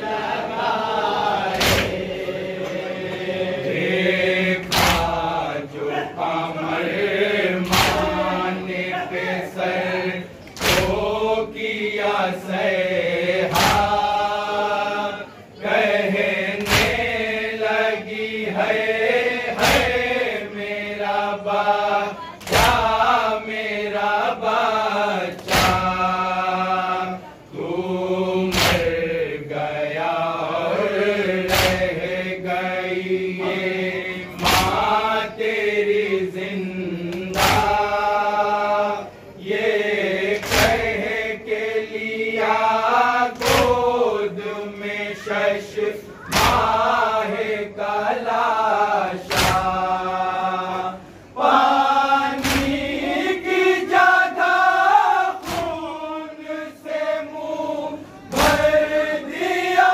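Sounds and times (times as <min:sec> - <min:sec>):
lead reciter chanting: 0:00.0 - 0:59.9
men chanting a lament in unison: 0:00.0 - 0:59.9
sharp chest slaps: 0:01.5 - 0:02.0, 0:04.6 - 0:05.2, 0:07.6 - 0:08.2, 0:10.6 - 0:11.1, 0:13.5 - 0:14.1, 0:16.6 - 0:17.1, 0:19.6 - 0:20.0, 0:25.4 - 0:26.0, 0:28.5 - 0:29.0, 0:31.5 - 0:31.9, 0:34.4 - 0:34.9, 0:37.3 - 0:37.8, 0:40.4 - 0:40.9, 0:43.4 - 0:43.8, 0:46.3 - 0:46.8, 0:49.3 - 0:49.8, 0:52.4 - 0:52.8, 0:55.4 - 0:55.8.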